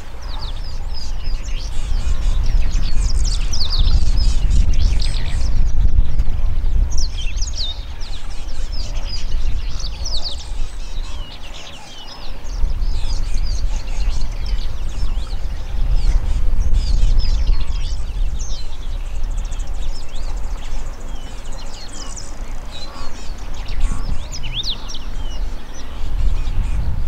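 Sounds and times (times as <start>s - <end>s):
birds chirping and trilling: 0.0s - 27.0s.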